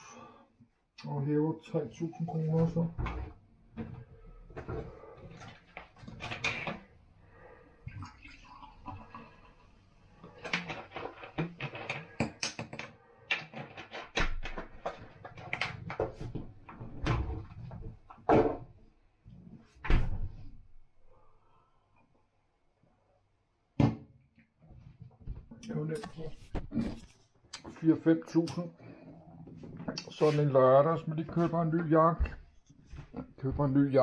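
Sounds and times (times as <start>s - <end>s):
cola glugging and fizzing: 7.8s - 10.3s.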